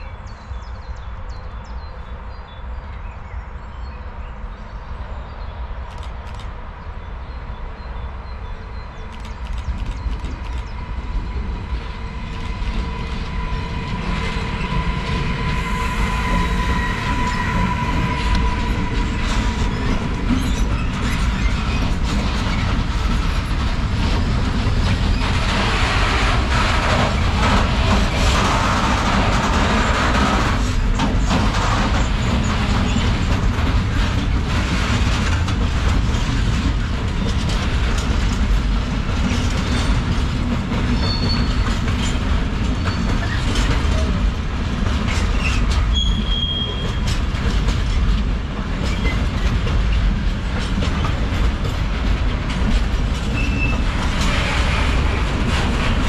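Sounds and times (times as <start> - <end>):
train rumble on rails: 0.0 - 56.0
wheel squeal: 40.9 - 44.2, 45.1 - 47.2, 53.3 - 55.1.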